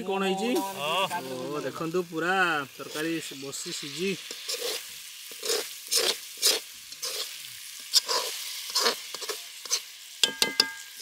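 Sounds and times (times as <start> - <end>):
oil sizzling faintly: 0.0 - 11.0
spatula scraping a pan: 2.9 - 11.0.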